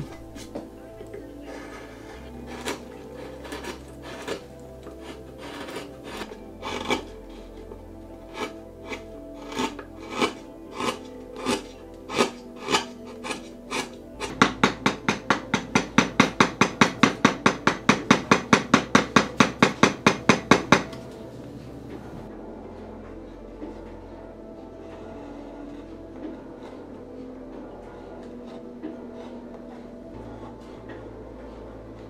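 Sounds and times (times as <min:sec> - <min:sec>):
carving gouge cutting wood: 0:00.0 - 0:22.3, 0:24.8 - 0:32.0.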